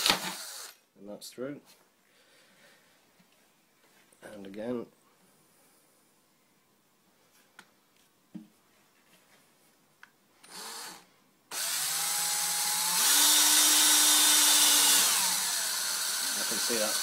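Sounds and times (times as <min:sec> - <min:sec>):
electric drill whining: 0:00.0 - 0:00.8, 0:10.4 - 0:17.0.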